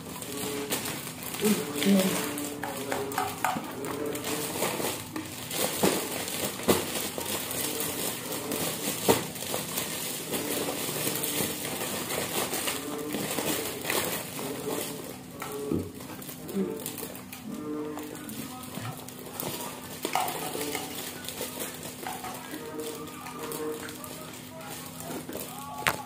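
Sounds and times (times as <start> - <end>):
plastic bags crinkling: 0.0 - 26.0.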